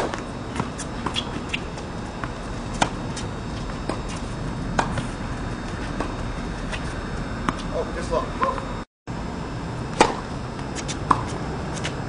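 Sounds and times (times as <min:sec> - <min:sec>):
tennis ball bounces: 0:00.0 - 0:03.2, 0:03.8 - 0:05.1, 0:09.9 - 0:12.0
tennis racket strikes: 0:09.9 - 0:11.9.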